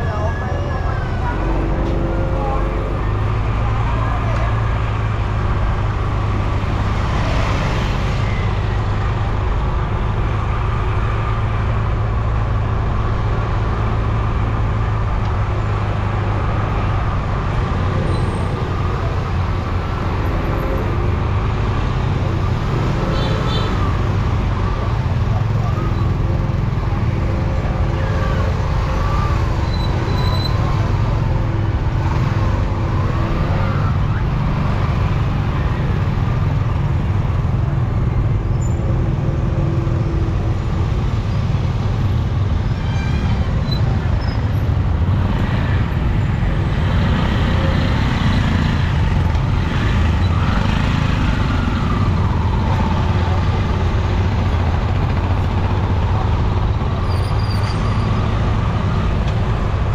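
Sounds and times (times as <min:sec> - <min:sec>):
low rumble of traffic engines: 0:00.0 - 0:59.9.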